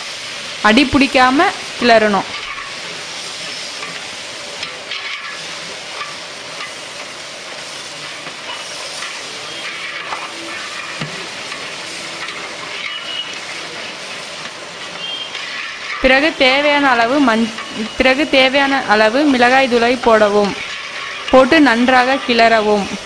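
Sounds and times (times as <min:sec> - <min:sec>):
food sizzling in hot oil: 0:00.0 - 0:23.0
faint scraping in pan: 0:04.7 - 0:06.9, 0:07.6 - 0:18.6, 0:20.2 - 0:22.3.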